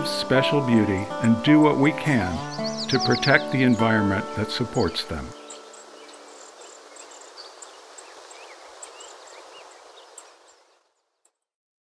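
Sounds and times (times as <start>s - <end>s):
steady outdoor hiss: 0.0s - 11.2s
faint high bird chirps: 2.4s - 3.6s, 5.3s - 11.2s.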